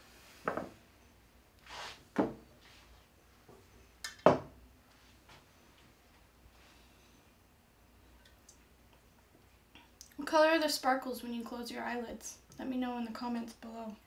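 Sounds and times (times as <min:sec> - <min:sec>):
soft rustle: 0:01.6 - 0:03.7, 0:04.8 - 0:07.3.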